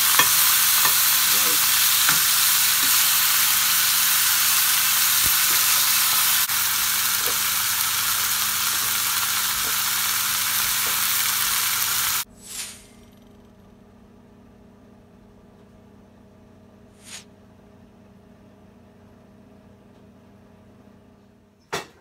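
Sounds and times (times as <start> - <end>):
chicken sizzling in skillet: 0.0 - 12.3.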